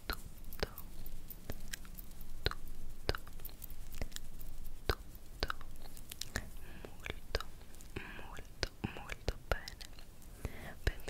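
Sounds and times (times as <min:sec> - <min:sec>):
mouth clicks: 0:00.0 - 0:11.0
wet lip smacks: 0:01.5 - 0:07.7.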